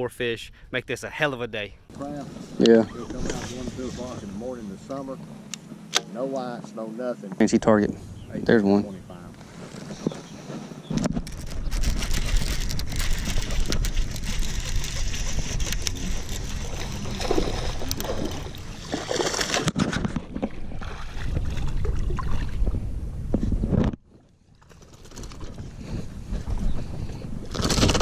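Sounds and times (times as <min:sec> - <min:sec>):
water splashing: 0:13.4 - 0:22.7.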